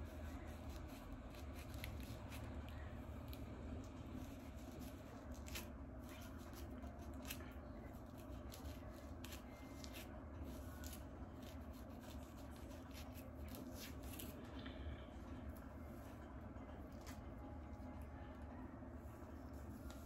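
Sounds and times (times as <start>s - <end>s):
comb scratching through hair: 0.0s - 14.4s, 19.3s - 20.0s
low steady hum: 0.0s - 20.0s.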